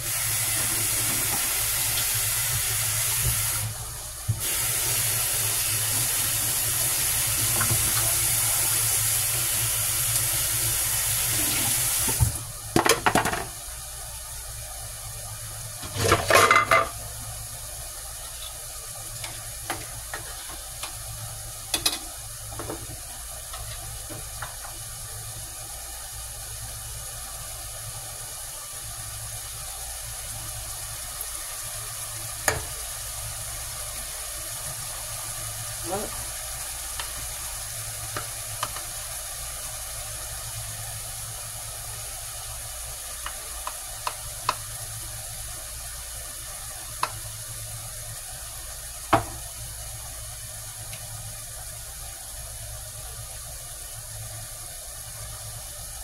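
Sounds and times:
water running from tap: 0.0 - 56.0
pots clattering: 15.8 - 17.0.

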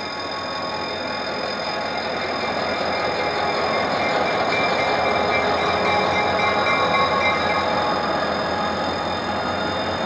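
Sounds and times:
diesel locomotive engine: 0.0 - 10.0
level crossing warning alarm: 0.0 - 10.0
train wheel noise: 0.0 - 10.0.

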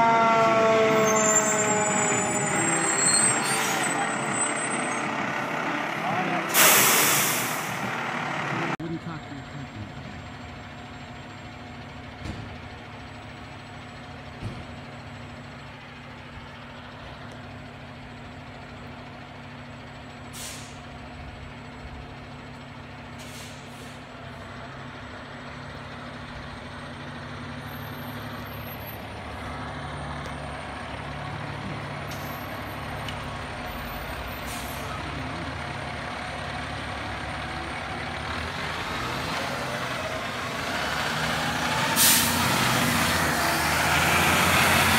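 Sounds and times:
truck diesel engine running: 0.0 - 44.9
air brakes hissing: 6.4 - 7.9, 20.3 - 20.8, 23.2 - 24.1, 34.2 - 35.0, 41.8 - 42.6.

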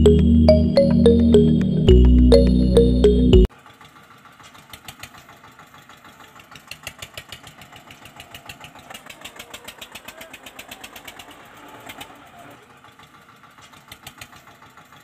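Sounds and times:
toy tractor motor ticking: 3.5 - 15.0.

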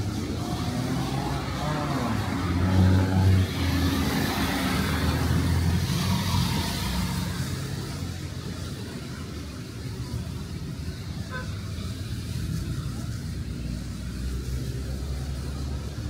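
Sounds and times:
car engine passing: 0.0 - 8.1
rain: 0.0 - 16.0
tyres hissing on wet road: 0.0 - 16.0.

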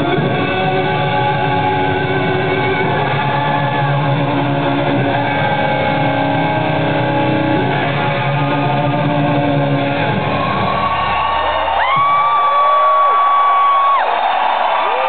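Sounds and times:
live rock band playing a ballad: 0.0 - 10.6
guitar holding long notes: 0.0 - 11.0.

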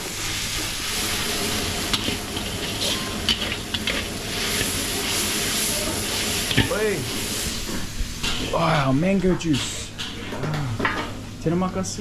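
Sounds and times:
noodles sizzling in a wok: 0.0 - 8.9
ladle scraping a wok: 0.6 - 8.6.

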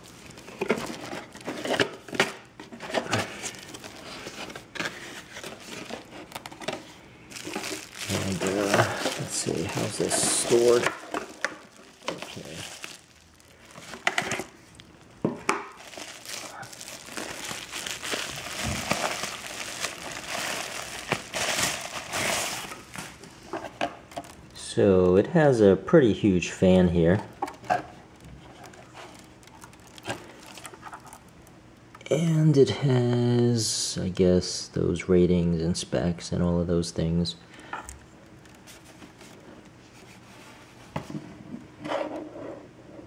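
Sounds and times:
cardboard and bubble wrap rustling: 0.0 - 24.4, 26.6 - 31.4, 38.2 - 41.3.

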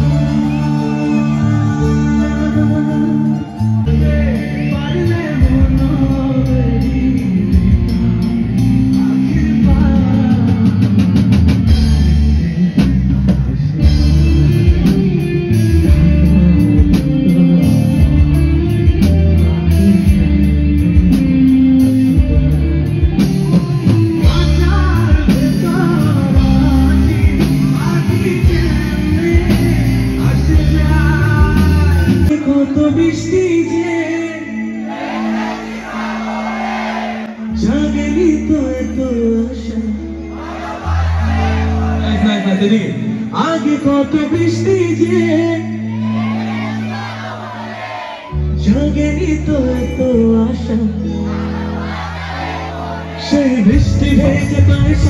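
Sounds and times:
man singing into a microphone: 0.0 - 15.0, 24.2 - 34.9, 37.3 - 46.1, 48.3 - 51.5, 53.0 - 55.0
live band playing: 0.0 - 55.0.

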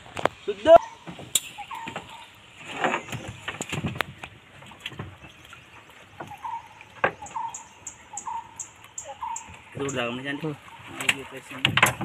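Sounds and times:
clicks and knocks against hull: 2.8 - 7.5, 11.0 - 12.0.

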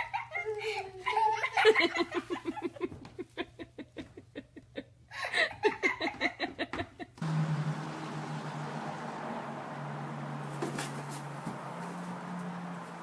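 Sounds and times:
person laughing hard: 0.0 - 7.2.

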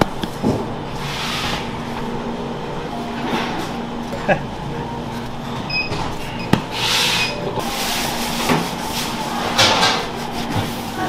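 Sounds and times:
steady machine hum: 0.0 - 11.0
rustling and scraping: 6.7 - 11.0.

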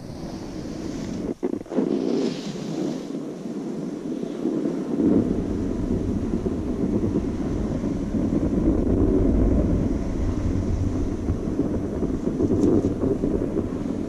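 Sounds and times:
hiss of sliding over snow: 0.0 - 5.2
wind rumbling on microphone: 0.0 - 14.0.

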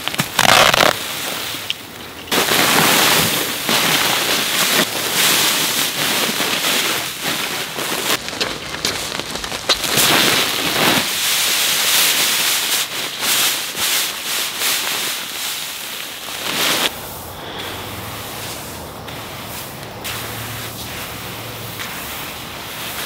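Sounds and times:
bag crinkling: 0.0 - 16.9
gloved hand scraping seed: 0.0 - 23.0.

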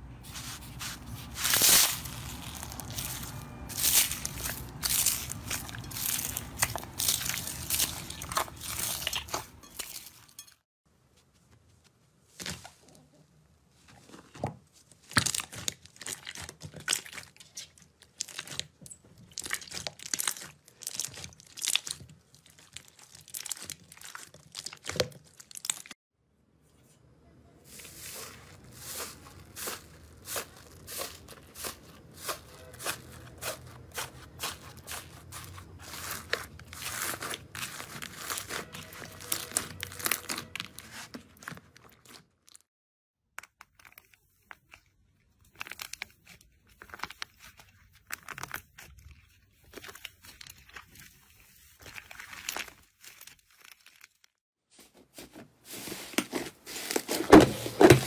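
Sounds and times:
slime crackling and popping: 1.2 - 9.5, 15.1 - 26.0, 29.4 - 42.2, 45.4 - 51.0.

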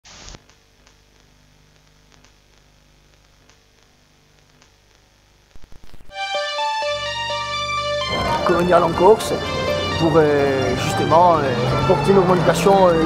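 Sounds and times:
static crackles: 0.0 - 6.3
static hiss: 0.0 - 7.3
glitchy bursts: 1.8 - 13.0
music with held notes: 6.1 - 13.0.

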